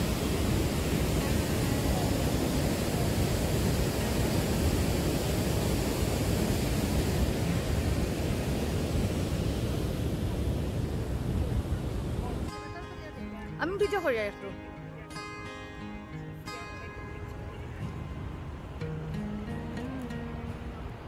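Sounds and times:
wind on microphone: 0.0s - 12.5s
waterfall roaring: 0.0s - 12.6s, 16.1s - 21.0s.

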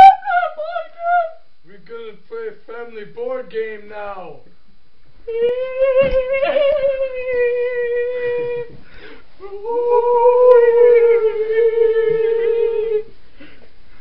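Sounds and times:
person humming steady notes: 5.3s - 8.8s, 9.4s - 13.1s.

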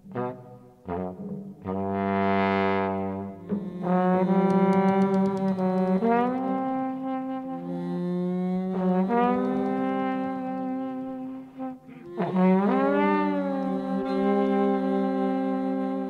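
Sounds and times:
jazz horn section holding notes: 0.0s - 16.0s.

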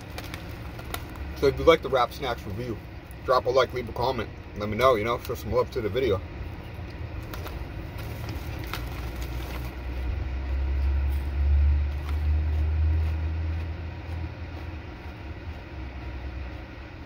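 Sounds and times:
plastic chip bag crinkling: 0.0s - 3.8s, 7.2s - 10.1s.

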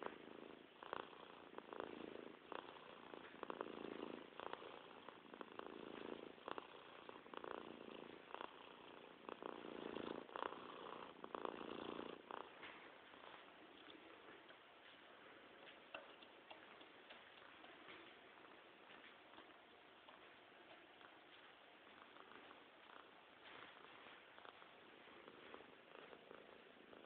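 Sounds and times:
animal purring: 0.0s - 27.0s
faint clicks: 13.7s - 23.1s.

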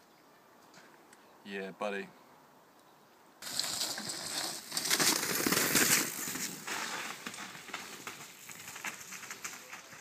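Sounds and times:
bike rattling: 3.4s - 10.0s
bike tyres crunching on dirt: 3.4s - 10.0s.

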